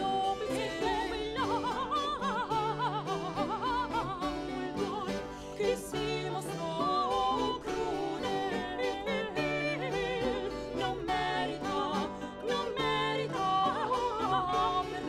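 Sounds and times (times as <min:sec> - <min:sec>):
two women singing duet: 0:00.0 - 0:15.0.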